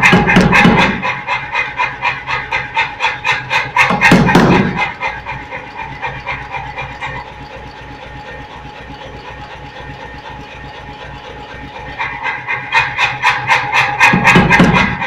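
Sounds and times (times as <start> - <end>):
power hammer blows on hot steel: 0.0 - 7.2, 12.0 - 15.0.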